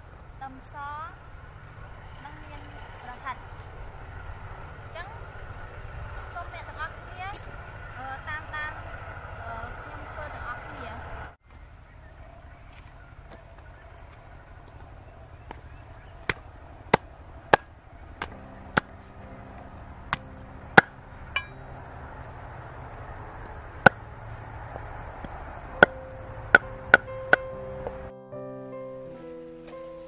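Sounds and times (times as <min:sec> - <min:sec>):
cleaver chopping on wooden board: 0:16.2 - 0:18.9.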